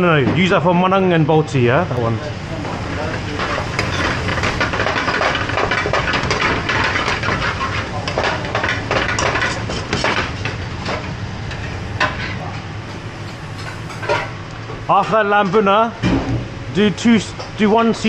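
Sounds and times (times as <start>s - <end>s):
gas range noise: 0.0s - 18.0s
metal spoon scraping frying pan: 9.0s - 10.4s.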